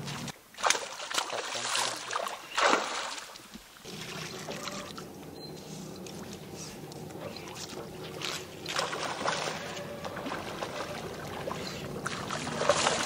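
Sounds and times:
water splashing and swishing: 0.0s - 13.0s
steady low hum: 3.9s - 13.0s.

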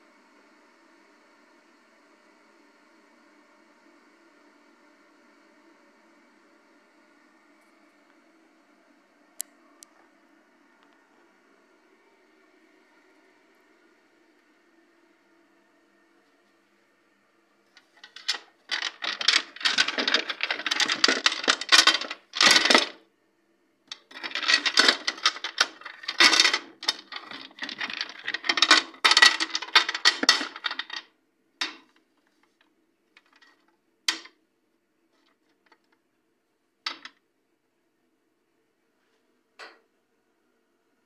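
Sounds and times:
small hard objects clinking: 17.8s - 23.0s, 23.9s - 31.0s.

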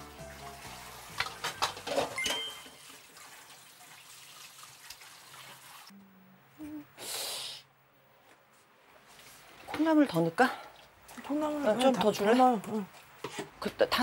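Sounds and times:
utensils clinking: 1.2s - 2.8s.

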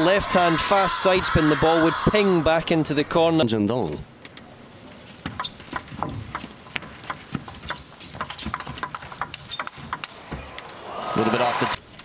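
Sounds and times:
table tennis ball clicking: 5.4s - 10.8s.

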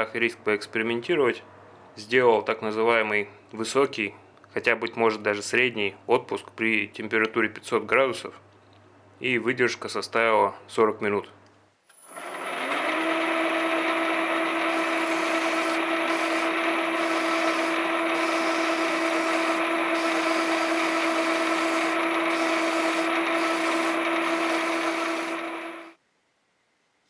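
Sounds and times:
motor-driven machine running: 11.9s - 26.0s.

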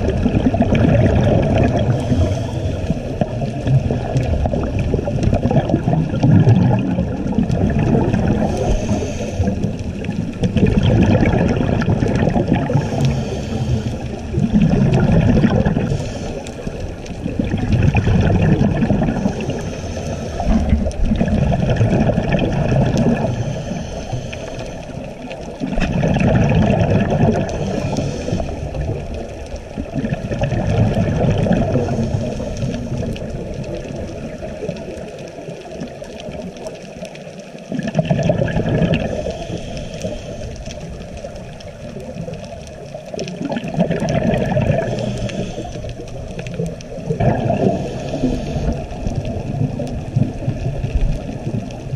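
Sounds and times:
exhaled bubbles rushing: 0.0s - 51.9s
regulator inhale hiss: 1.7s - 3.2s, 8.3s - 10.1s, 12.6s - 14.4s, 15.7s - 17.1s, 19.1s - 20.9s, 23.1s - 25.4s, 27.4s - 29.3s, 31.6s - 33.3s, 39.0s - 41.6s, 44.7s - 47.0s, 47.6s - 49.2s.

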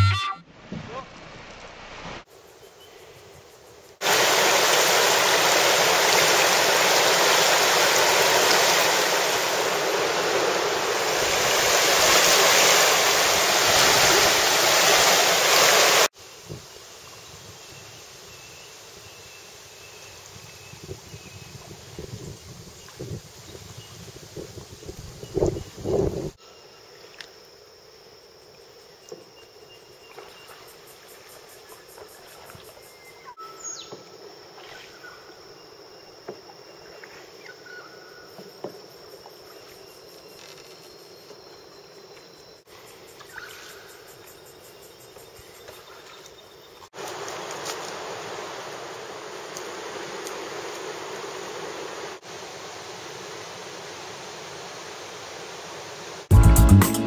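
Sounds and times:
insects droning: 0.9s - 56.3s
rush of running water: 4.0s - 16.2s, 46.9s - 56.3s.

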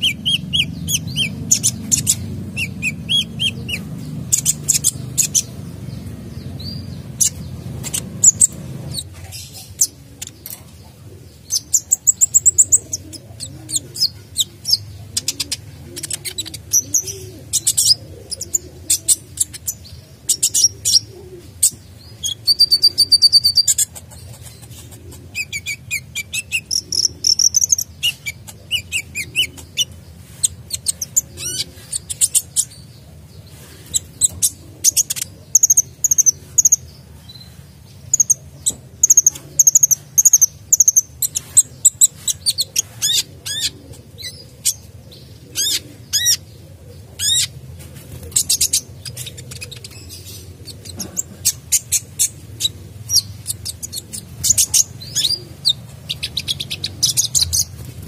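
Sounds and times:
bird singing high chirps: 0.0s - 10.7s, 11.5s - 23.9s, 25.4s - 32.9s.

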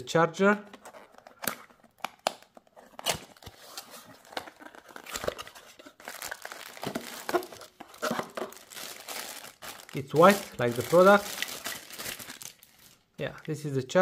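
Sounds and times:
cardboard box being opened: 2.8s - 12.6s
plastic bag crinkling: 4.5s - 13.0s.

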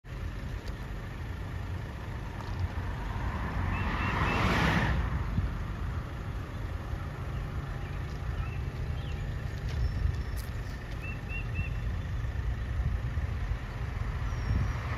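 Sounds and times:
steady low rumble: 0.0s - 4.0s, 4.8s - 14.9s
car driving past: 2.3s - 5.5s.

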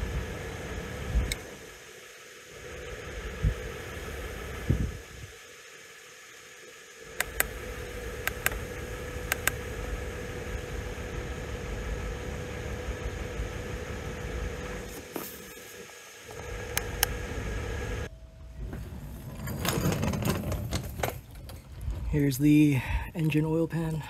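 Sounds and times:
low steady rumble: 2.4s - 5.4s, 7.0s - 15.0s
scan tool buttons clicking: 7.2s - 7.6s, 8.2s - 8.6s, 9.3s - 9.6s.

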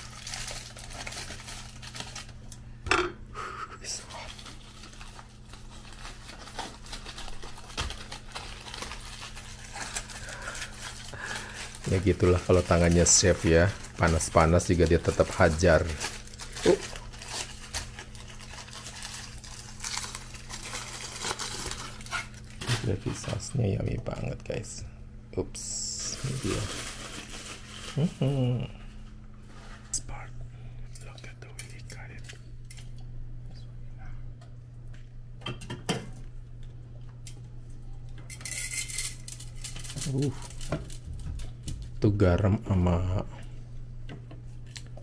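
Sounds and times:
low hum: 0.0s - 12.9s
steady low hum: 0.0s - 45.0s.

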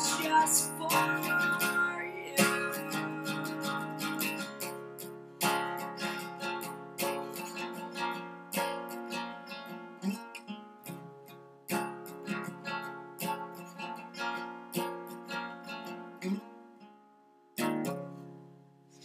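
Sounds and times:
acoustic guitar strumming chords: 0.0s - 19.0s.

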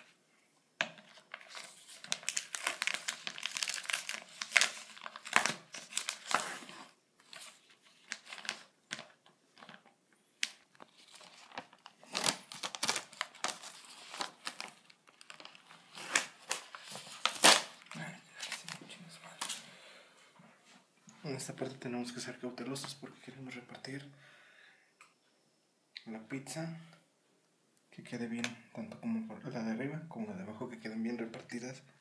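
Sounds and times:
plastic packaging crinkling and tearing: 1.0s - 19.6s.

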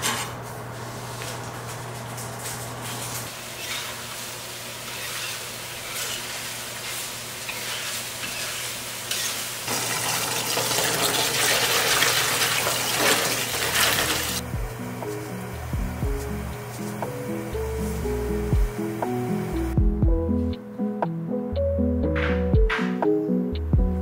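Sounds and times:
stir-fry sizzling in a pan: 3.2s - 15.6s
spatula stirring: 3.4s - 9.5s
water running and splashing: 9.7s - 14.4s
soft background music: 14.4s - 24.0s.

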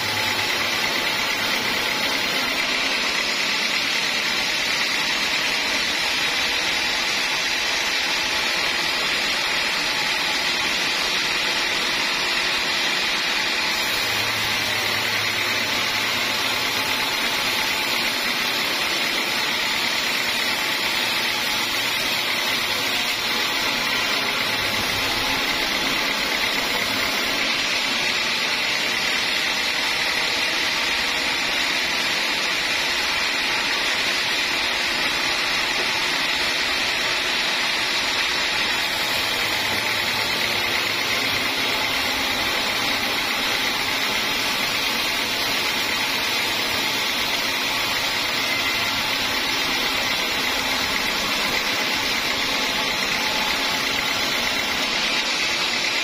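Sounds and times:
band saw cutting log: 0.0s - 56.0s.

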